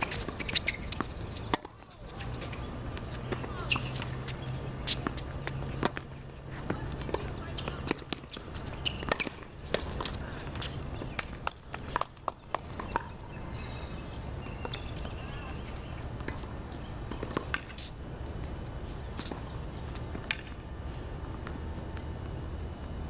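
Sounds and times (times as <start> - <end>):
shoes tapping on court: 0.0 - 13.2, 14.5 - 20.6
tennis ball bouncing: 0.0 - 13.3, 17.1 - 18.5, 19.2 - 20.6.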